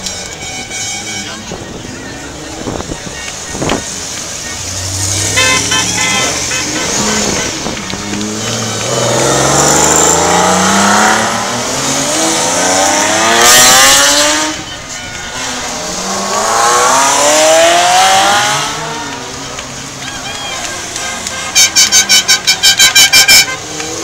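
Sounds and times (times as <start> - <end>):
sports cars accelerating: 1.5 - 24.0
car passing with rushing burst: 1.6 - 20.0.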